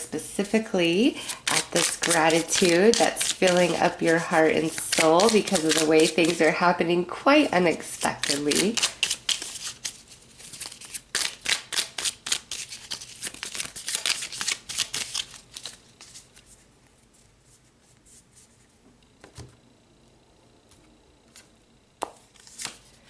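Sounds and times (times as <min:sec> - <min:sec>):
cards shuffled by hand: 0:01.2 - 0:06.6, 0:07.7 - 0:16.7, 0:21.3 - 0:23.0.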